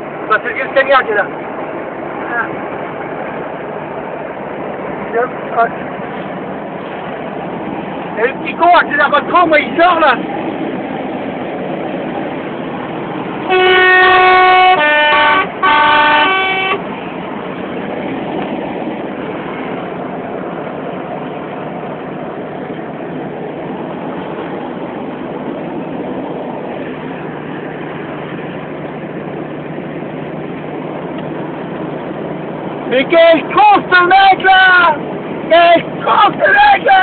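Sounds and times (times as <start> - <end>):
vehicle engine and road noise: 0.0 - 37.0
lorry air horn blasts: 13.5 - 16.8.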